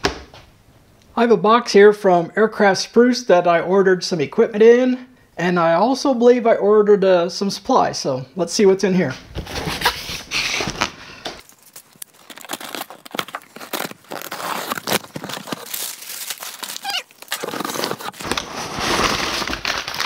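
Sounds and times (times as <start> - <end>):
packing paper rustling: 9.4 - 20.0
packing tape ripping: 11.4 - 20.0
cardboard box scraping on table: 17.4 - 19.6.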